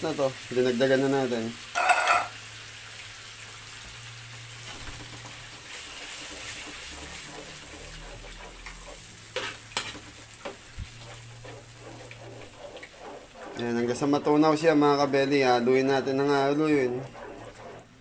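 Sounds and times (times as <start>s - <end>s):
low sizzle: 0.0s - 18.0s
ladle stirring sauce in a wok: 5.4s - 18.0s.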